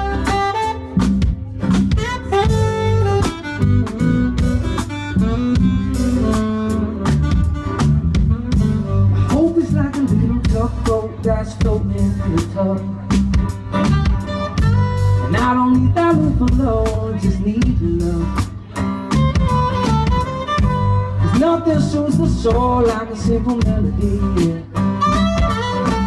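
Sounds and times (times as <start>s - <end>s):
saxophone solo: 0.0s - 9.6s, 13.6s - 15.3s, 19.2s - 21.7s, 24.8s - 26.0s
live band playing: 0.0s - 26.0s.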